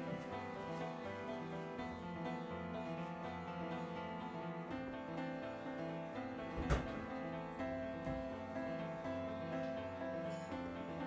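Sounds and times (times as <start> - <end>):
slow sustained instrumental music: 0.0 - 6.4.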